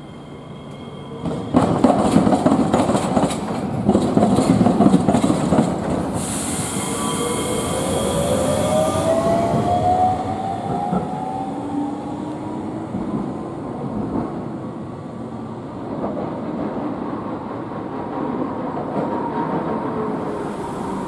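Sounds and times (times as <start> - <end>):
tram motor whine: 6.2 - 14.0.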